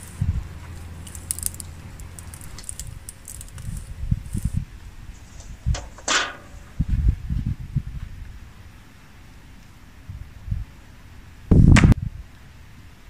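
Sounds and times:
light high crackling: 0.0s - 6.8s
metal sheet scraping across bricks: 0.0s - 7.0s.

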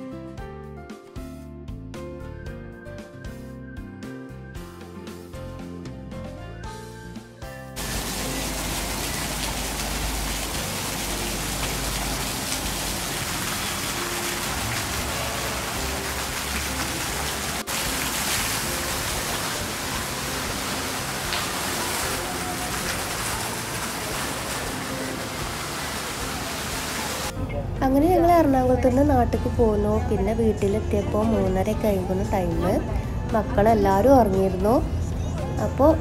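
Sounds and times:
fountain water splashing: 7.8s - 27.3s.

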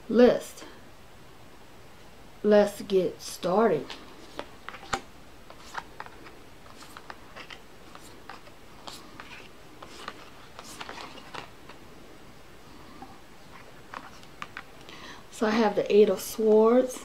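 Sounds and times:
cards sliding on wood: 3.8s - 11.8s.

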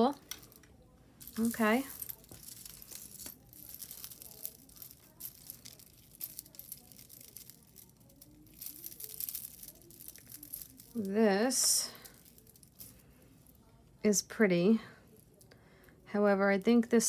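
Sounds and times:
metal jewelry clinking: 0.0s - 13.7s.

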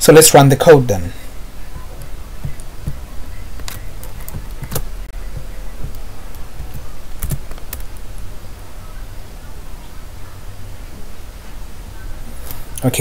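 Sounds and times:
steady low hum: 0.0s - 13.0s
keyboard and mouse clicks: 3.6s - 8.0s.

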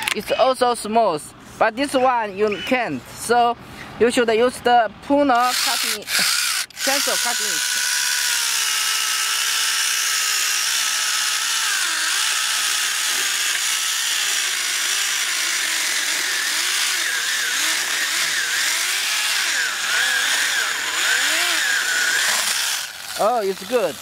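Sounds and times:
mini chainsaw cutting wood: 0.0s - 0.2s, 5.4s - 24.0s.

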